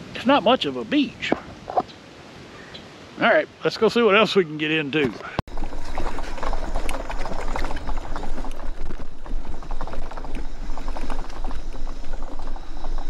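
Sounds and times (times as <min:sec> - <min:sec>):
clicks and crackles over rough ground: 0:05.0 - 0:13.0
scooter rumbling over dirt: 0:05.5 - 0:13.0.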